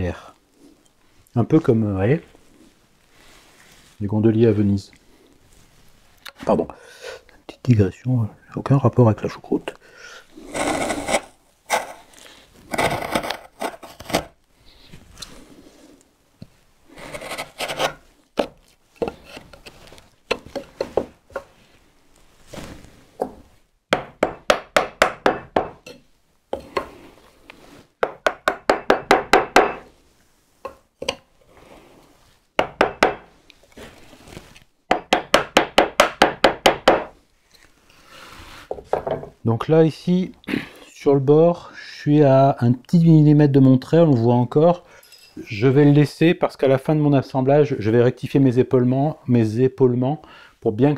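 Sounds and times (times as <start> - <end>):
chisel scraping wood: 10.4 - 14.3, 17.0 - 21.5.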